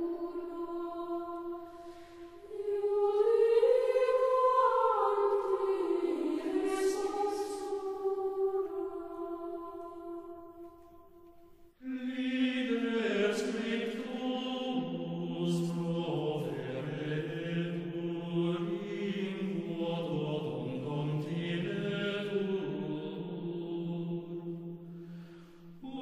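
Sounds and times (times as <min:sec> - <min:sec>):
slow chant-like singing: 0:00.0 - 0:26.0.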